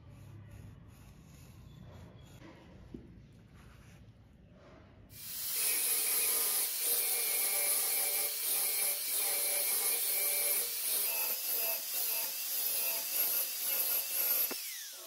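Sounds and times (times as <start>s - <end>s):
angle grinder grinding steel: 5.2s - 15.0s.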